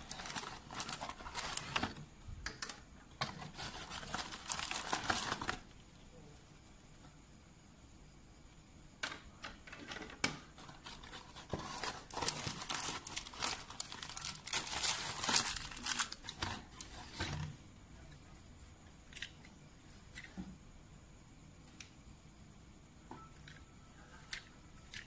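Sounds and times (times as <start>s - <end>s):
cardboard and plastic packaging rustling: 0.0s - 5.7s, 10.5s - 17.6s.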